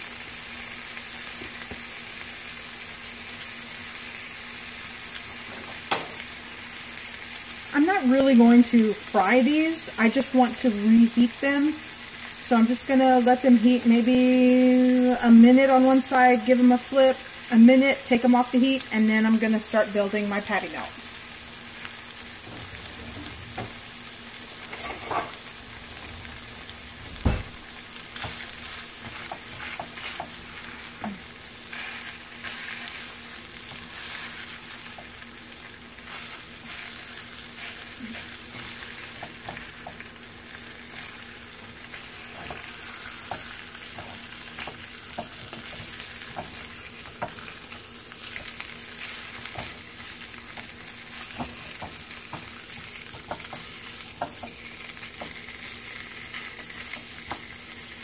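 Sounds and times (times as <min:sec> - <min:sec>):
meat sizzling in a pan: 0:00.0 - 0:58.0
sharp thump: 0:27.2 - 0:27.6
spatula scraping and tapping pan: 0:28.2 - 0:31.2, 0:42.2 - 0:47.5, 0:48.3 - 0:55.5.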